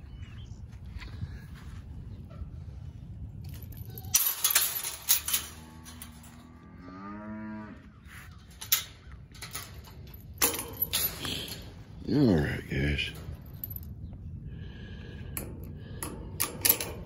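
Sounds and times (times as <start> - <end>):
cow mooing: 5.4 - 8.1.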